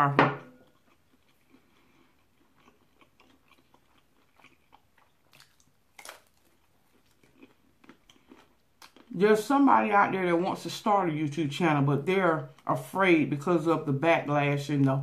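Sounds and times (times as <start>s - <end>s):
bacon crunch: 0.5s - 9.2s
chewing sounds: 0.5s - 9.2s.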